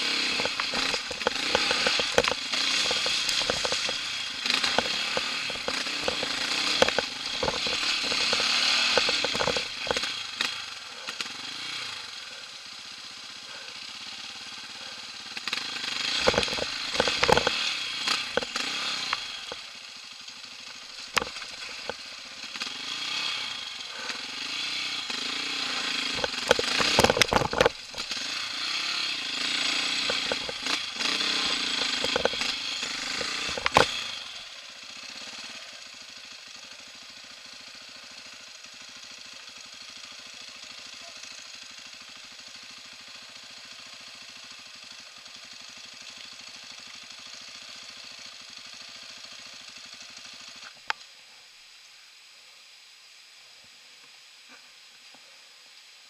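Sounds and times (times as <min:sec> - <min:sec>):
quad bike engine running: 0:00.0 - 0:52.2
knocks and rattles over stones: 0:00.2 - 0:10.1, 0:16.1 - 0:19.6, 0:21.0 - 0:22.0, 0:26.1 - 0:28.2, 0:30.0 - 0:34.2.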